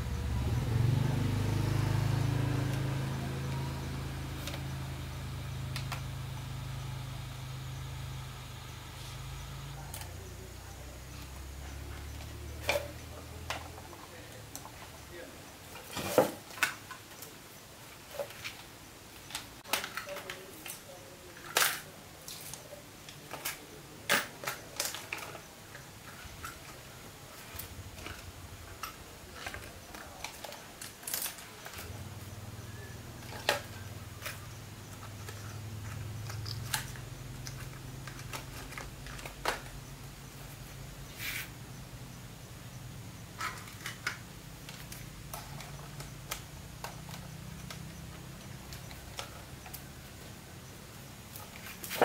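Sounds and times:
low steady hum: 0.0s - 15.9s.

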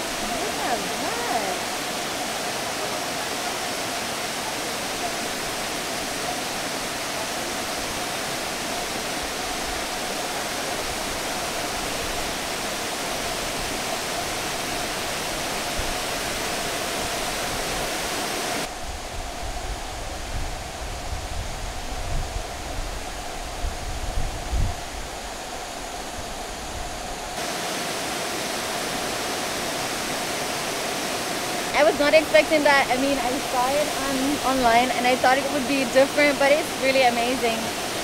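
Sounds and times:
waterfall rushing: 0.0s - 18.7s, 27.4s - 38.0s.

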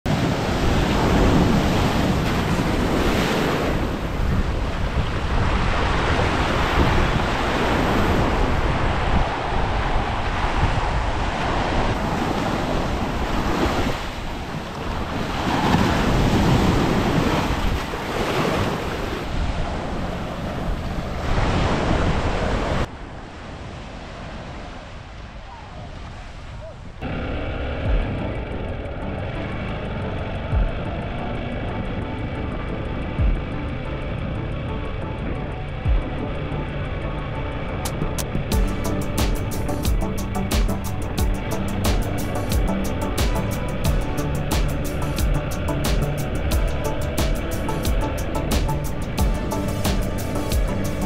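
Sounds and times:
wind buffeting microphone: 0.0s - 27.1s
surf breaking on beach: 0.1s - 27.1s.

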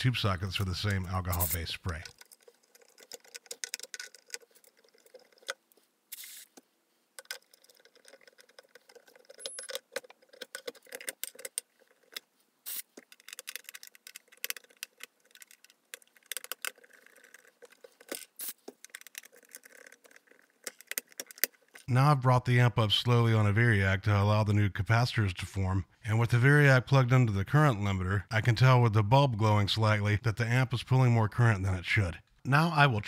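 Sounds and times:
spray can hiss: 1.3s - 1.6s, 6.1s - 6.6s, 12.7s - 13.0s, 18.4s - 18.6s.

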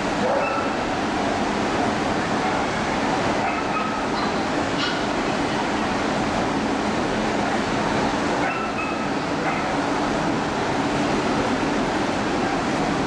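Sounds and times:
dense crowd din in a hall: 0.0s - 13.0s.

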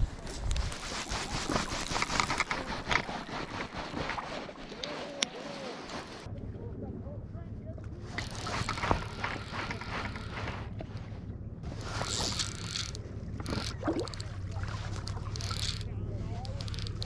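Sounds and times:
rustling: 0.0s - 6.3s, 8.0s - 17.0s
fishing rod and line clicks: 1.4s - 6.1s, 8.2s - 11.0s, 11.7s - 17.0s.

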